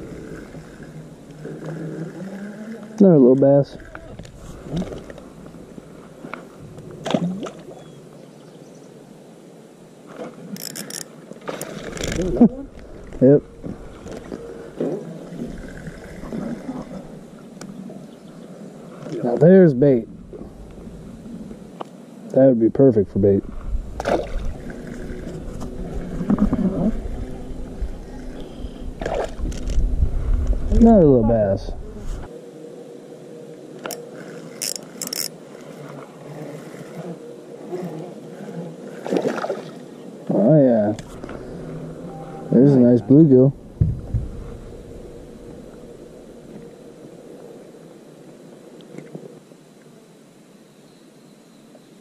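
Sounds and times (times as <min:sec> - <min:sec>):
faint water movement: 0:00.0 - 0:50.6
fishing reel cranking: 0:10.6 - 0:12.4, 0:33.8 - 0:35.7
steady low rumble: 0:19.7 - 0:21.7, 0:22.8 - 0:32.3, 0:41.0 - 0:47.4.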